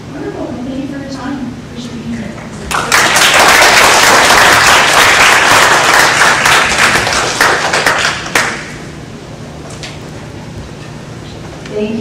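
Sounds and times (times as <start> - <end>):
audience applause: 2.7 - 8.8.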